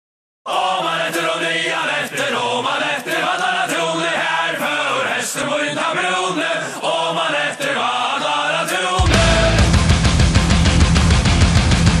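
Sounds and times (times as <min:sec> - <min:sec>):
male voices chanting: 0:00.5 - 0:09.9.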